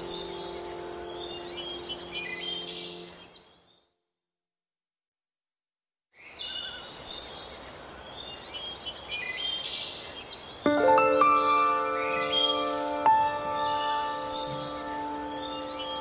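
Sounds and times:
soft background music: 0:00.0 - 0:03.4, 0:10.7 - 0:16.0
birds chirping: 0:00.0 - 0:03.9, 0:06.2 - 0:16.0.

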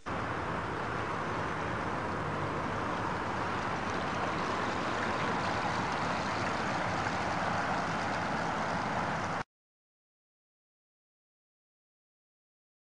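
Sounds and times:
model boat rushing through water: 0:00.0 - 0:09.4.

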